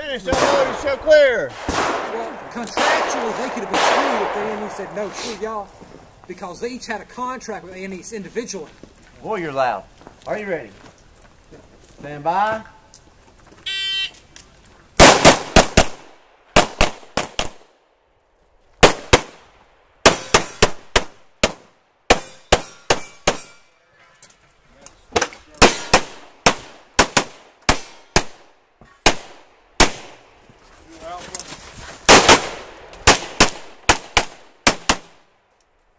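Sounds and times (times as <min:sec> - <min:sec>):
pistol shots: 0:00.3 - 0:05.6, 0:15.0 - 0:17.7, 0:18.8 - 0:23.5, 0:25.6 - 0:30.2, 0:32.1 - 0:35.2.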